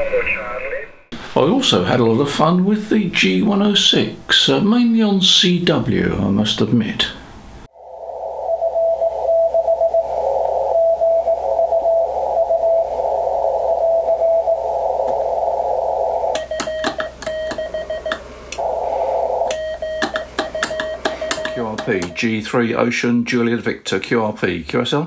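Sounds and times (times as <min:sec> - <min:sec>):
radio receiver hiss: 0:07.6 - 0:22.3
keyed sidetone with sharp clicks: 0:16.3 - 0:18.6, 0:19.5 - 0:22.3
morse code tone: 0:16.4 - 0:18.8, 0:19.4 - 0:22.4.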